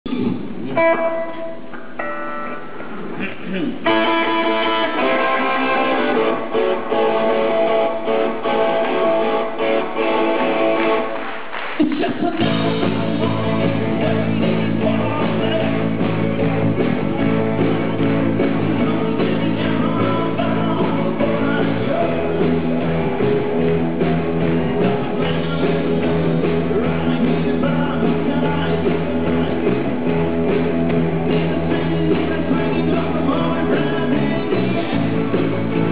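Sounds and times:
live rock band playing: 0.1 - 35.9
person singing: 11.8 - 23.0, 24.4 - 30.2, 31.2 - 35.9.

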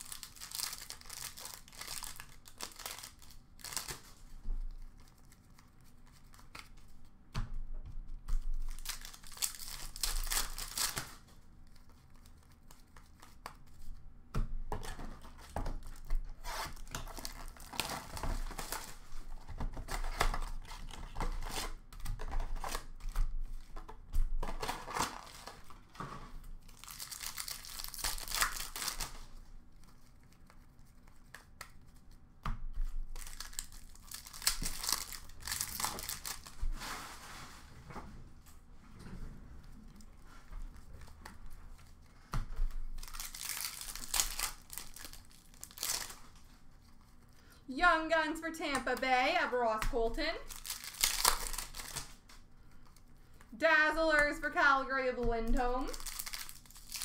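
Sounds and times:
foil wrappers tearing and crinkling: 0.0 - 6.9, 8.4 - 13.8, 14.8 - 25.8, 26.5 - 32.1, 32.8 - 37.1, 42.7 - 47.2, 50.2 - 53.1, 55.4 - 57.0.

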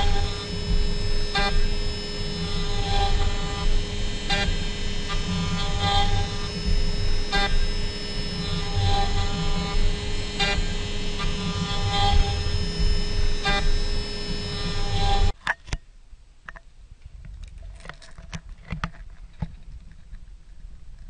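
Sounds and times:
axis motors whirring: 0.0 - 15.4
cnc router whine and cutting rumble: 0.0 - 15.4.

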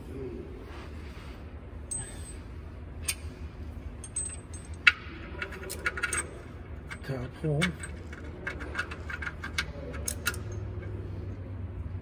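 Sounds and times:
low steady hum: 0.0 - 12.0
metal bolts clinking: 4.0 - 11.0.

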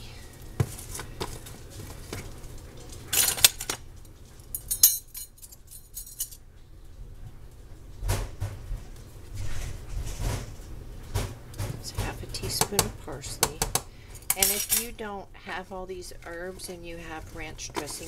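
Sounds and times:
metal spoons clinking: 4.6 - 6.4, 14.2 - 15.0.

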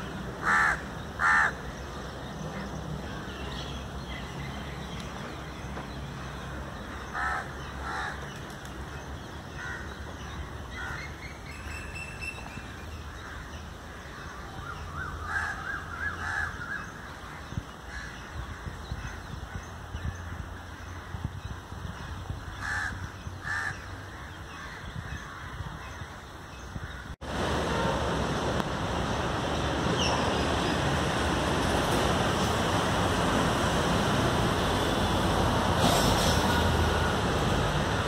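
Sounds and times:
crows cawing: 0.4 - 1.6, 7.1 - 8.2, 15.2 - 16.8, 22.6 - 25.6.

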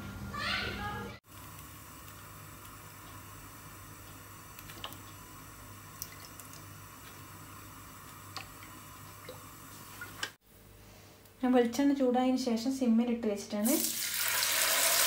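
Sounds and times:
oil trickling into a frying pan: 13.7 - 15.0.

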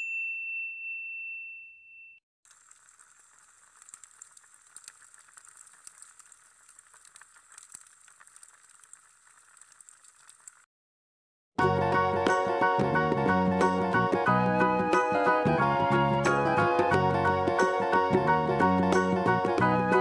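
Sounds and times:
log fire crackling: 2.5 - 10.6
music: 11.6 - 20.0.

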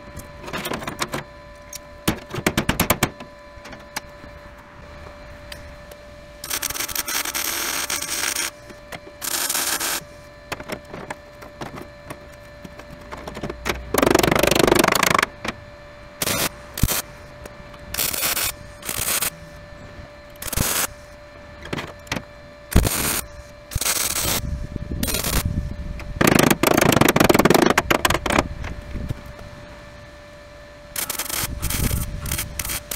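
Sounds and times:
welder crackling: 6.4 - 10.8, 16.2 - 17.1, 17.9 - 19.5, 20.3 - 21.0, 22.1 - 24.4, 25.0 - 25.5, 30.9 - 32.9.

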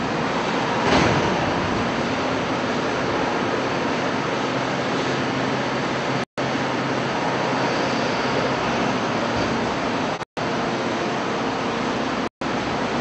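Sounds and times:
hydraulic power unit running: 0.0 - 13.0.

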